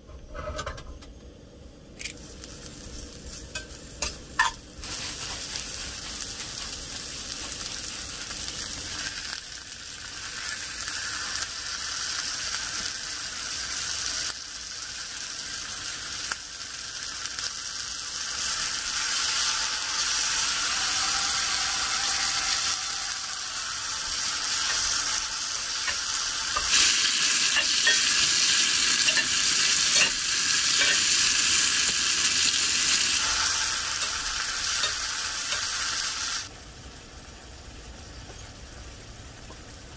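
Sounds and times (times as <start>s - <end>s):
food sizzling in a skillet: 2.0s - 39.6s
fork stirring in a skillet: 29.0s - 30.2s, 30.8s - 31.2s.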